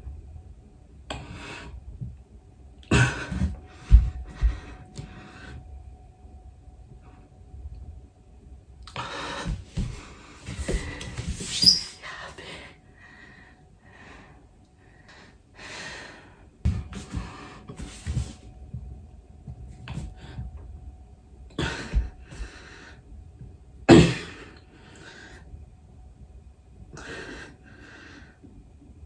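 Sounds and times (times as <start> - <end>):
man breathing heavily: 2.9 - 5.8, 8.9 - 18.4, 21.6 - 23.1.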